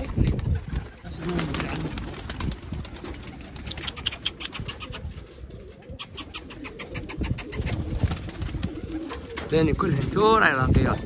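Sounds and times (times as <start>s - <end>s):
pigeon wing flaps: 0.0s - 11.0s
pigeons cooing: 2.9s - 11.0s.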